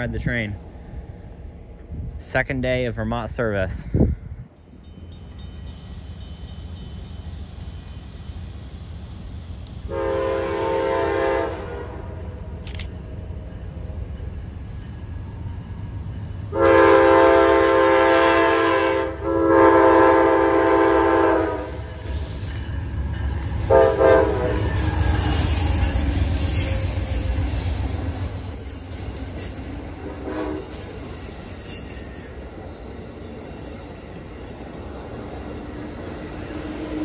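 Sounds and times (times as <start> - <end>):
train cars rolling on rails: 0.0 - 37.0
locomotive horn blasts: 9.9 - 12.2, 16.5 - 21.8, 23.6 - 25.3, 30.0 - 30.8.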